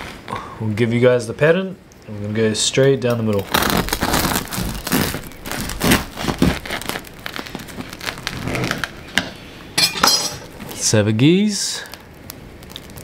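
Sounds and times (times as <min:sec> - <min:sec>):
knife sawing through crusty bread: 0:03.5 - 0:07.0.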